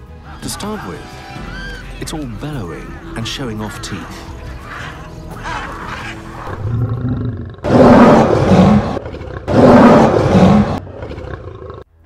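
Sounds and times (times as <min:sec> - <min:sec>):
lion roaring: 0:05.4 - 0:11.9.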